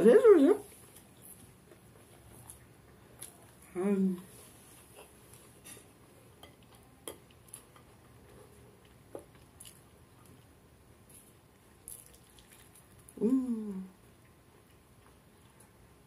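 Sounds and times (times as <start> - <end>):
person humming: 13.2 - 14.0.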